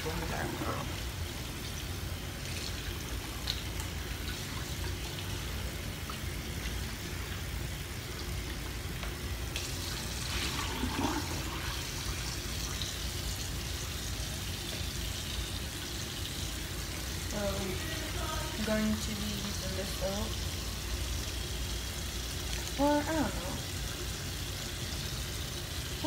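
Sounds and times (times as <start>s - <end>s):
water running: 0.0s - 26.0s.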